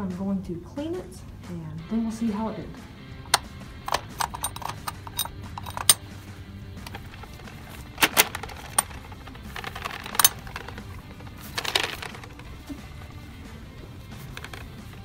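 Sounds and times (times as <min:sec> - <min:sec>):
background music: 0:00.0 - 0:15.0
clicks on metal coin mechanism: 0:03.3 - 0:06.1, 0:06.8 - 0:12.5, 0:14.2 - 0:15.0.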